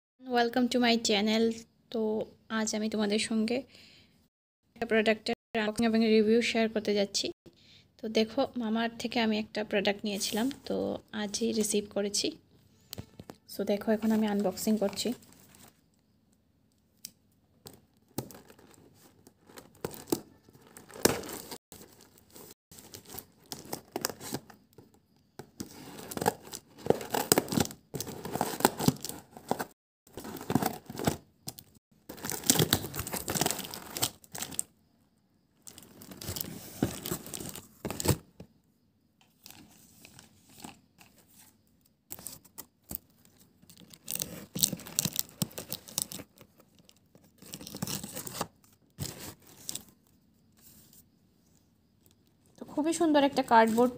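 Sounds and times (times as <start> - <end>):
paper packing filler crinkling: 18.2 - 24.6, 25.6 - 31.2, 32.1 - 34.7, 43.8 - 46.7.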